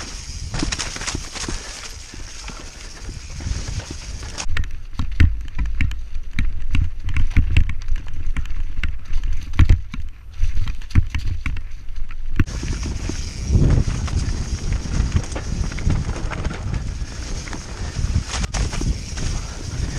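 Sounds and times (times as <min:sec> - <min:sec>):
wind on microphone: 0:00.0 - 0:04.5, 0:12.4 - 0:19.9
bike rattling on dirt trail: 0:00.0 - 0:19.9.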